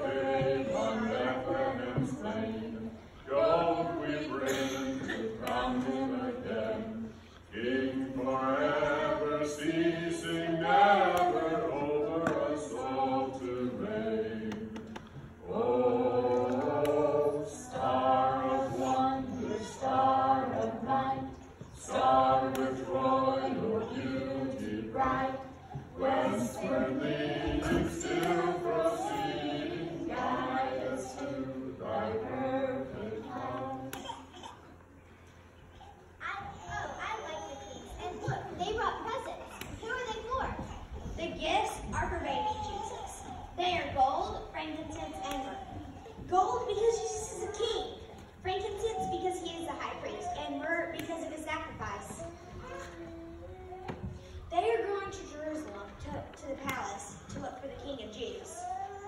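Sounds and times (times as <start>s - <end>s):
children's choir singing: 0.0s - 34.5s.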